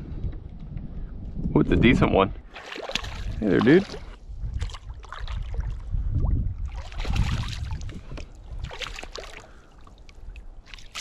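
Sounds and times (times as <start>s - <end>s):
fish splashing at the surface: 2.5s - 5.8s, 6.7s - 7.8s, 8.6s - 9.8s.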